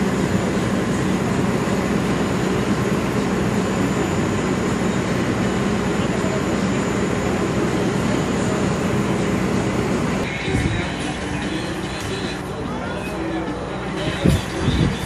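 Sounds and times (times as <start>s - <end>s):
mechanical drone with low hum: 0.0s - 15.0s
faint voices: 5.0s - 15.0s.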